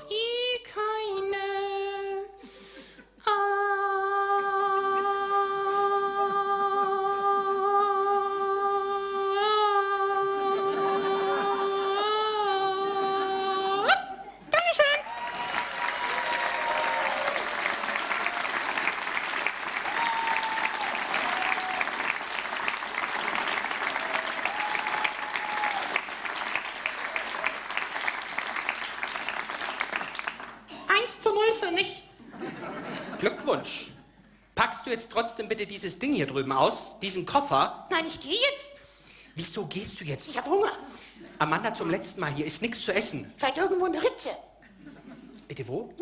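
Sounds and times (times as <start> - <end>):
audience applauding: 15.0 - 30.7.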